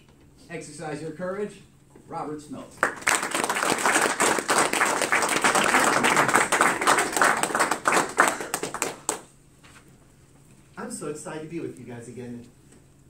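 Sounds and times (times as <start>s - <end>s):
audience applauding: 2.8s - 9.3s.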